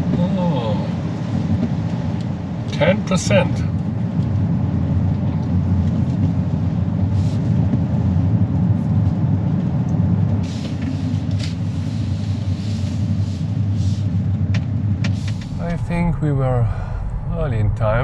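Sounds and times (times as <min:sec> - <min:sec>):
road and tyre rumble: 0:00.0 - 0:18.0.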